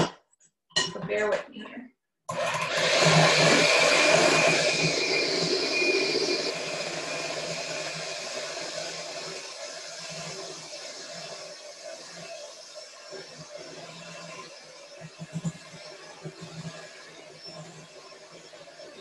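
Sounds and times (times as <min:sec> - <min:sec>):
electric hand mixer whirring: 0:02.3 - 0:19.0.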